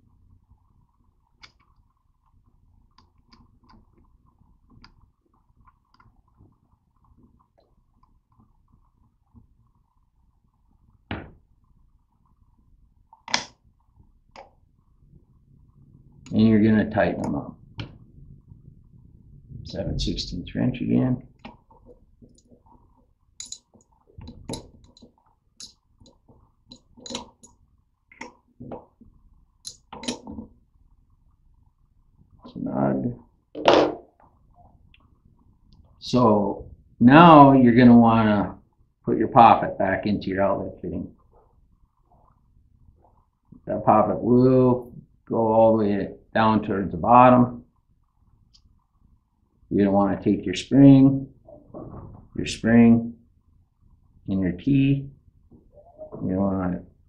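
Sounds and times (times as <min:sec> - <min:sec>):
faint steady hum: 0:00.0 - 0:57.0
wrench clinking against metal bolts: 0:23.4 - 0:23.7, 0:26.7 - 0:27.5, 0:29.6 - 0:30.4
metal bolts clicking: 0:23.4 - 0:27.6, 0:29.6 - 0:30.4.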